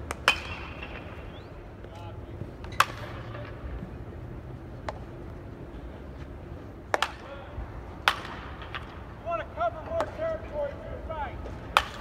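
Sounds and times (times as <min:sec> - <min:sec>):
distant baseball bat cracks: 0:02.7 - 0:03.6, 0:06.9 - 0:07.3, 0:08.0 - 0:09.0, 0:11.7 - 0:12.0.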